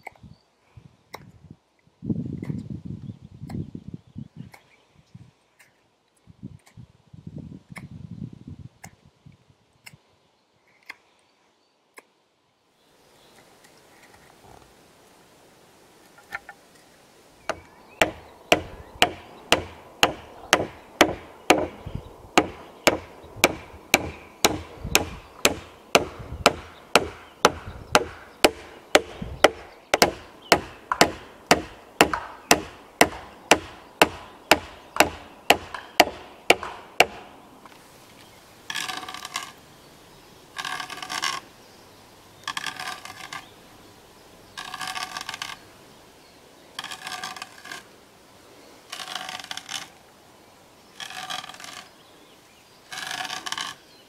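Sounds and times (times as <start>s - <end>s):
hammer striking wooden peg: 17.5s - 37.4s.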